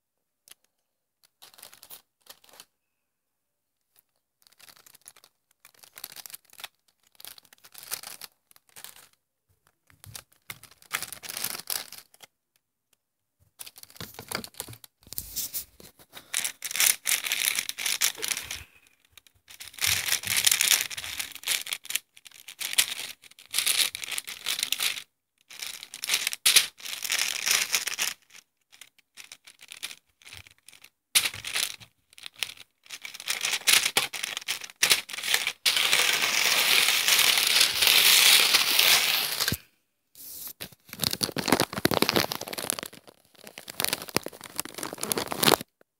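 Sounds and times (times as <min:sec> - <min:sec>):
plastic toy bricks rustling: 0:13.6 - 0:39.6, 0:40.5 - 0:45.8.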